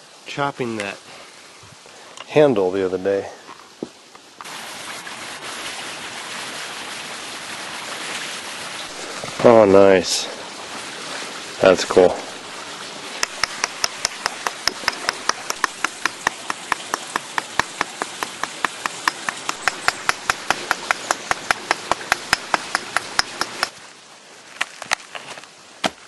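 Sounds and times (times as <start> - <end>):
rapid strikes of hand tool: 13.2 - 23.7
scattered knocks: 13.2 - 23.7.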